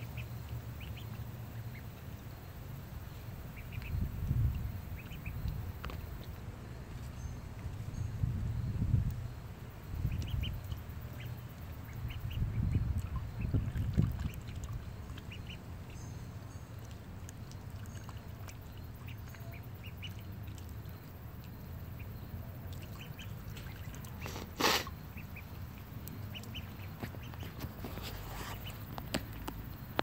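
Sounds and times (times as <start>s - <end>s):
steady low rumble: 0.0s - 24.2s
ducks calling: 22.0s - 29.2s.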